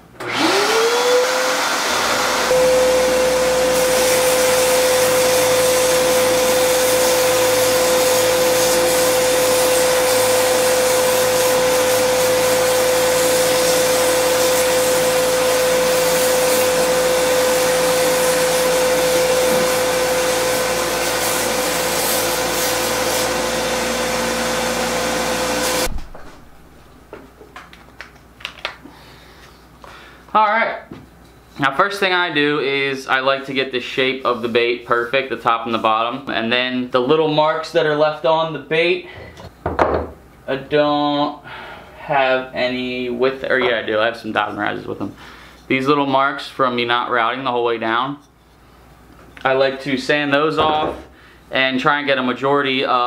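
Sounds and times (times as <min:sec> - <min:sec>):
belt sander whining: 0:00.2 - 0:25.9
shop vacuum rushing: 0:00.2 - 0:26.0.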